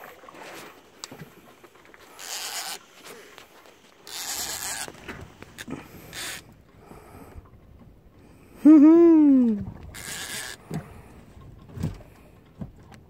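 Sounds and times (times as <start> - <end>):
fishing reel drag buzzing: 2.0 - 6.6, 9.9 - 10.7.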